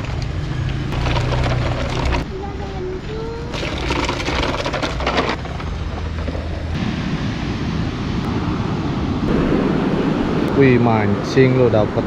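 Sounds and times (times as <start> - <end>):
clattering rattle: 1.0 - 2.2, 3.6 - 6.4
wind on microphone: 6.7 - 12.0.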